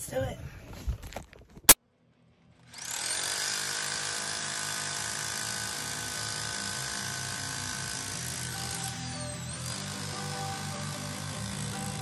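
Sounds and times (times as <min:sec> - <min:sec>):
electric jackhammer pounding: 0:02.6 - 0:12.0.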